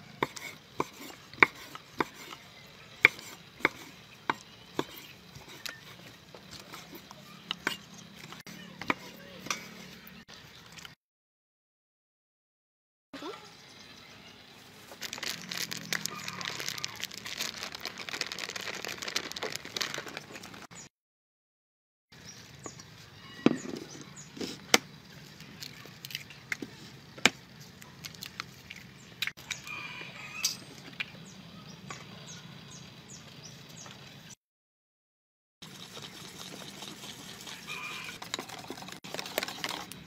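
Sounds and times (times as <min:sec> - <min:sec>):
eggs cracking against a bowl: 0:15.0 - 0:20.7.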